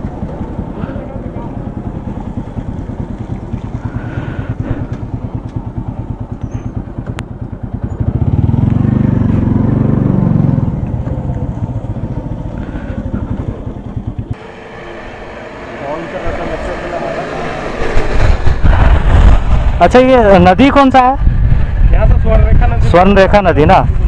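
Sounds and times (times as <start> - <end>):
motorcycle engine running: 0.0 - 15.7.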